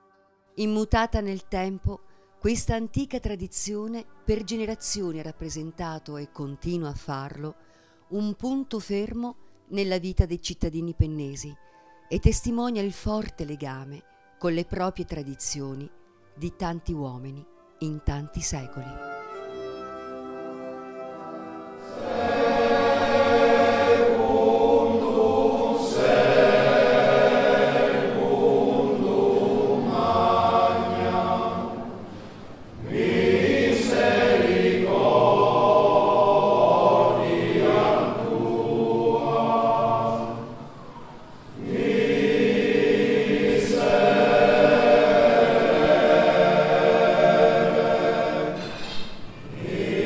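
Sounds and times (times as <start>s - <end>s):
soft music: 0.0s - 50.0s
choir singing solemn chant: 21.2s - 50.0s.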